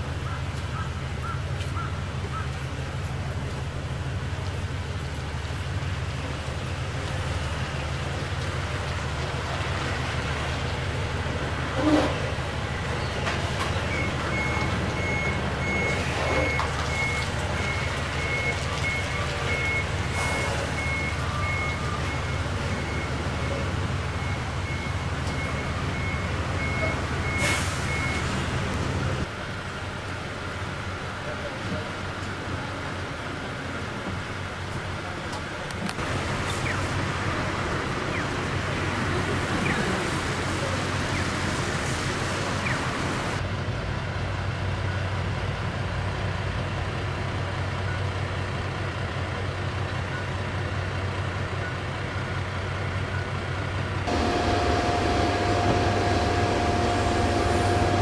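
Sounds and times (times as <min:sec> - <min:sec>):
coach diesel engine running: 0:00.0 - 0:58.0
reversing warning beeps: 0:13.8 - 0:28.4, 0:54.1 - 0:58.0.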